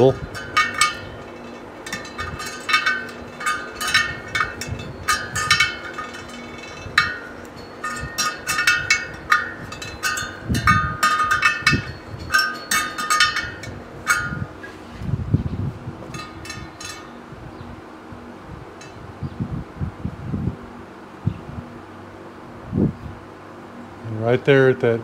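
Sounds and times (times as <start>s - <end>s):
spoke wrench clinking on spokes: 0.0s - 14.9s, 16.0s - 17.3s.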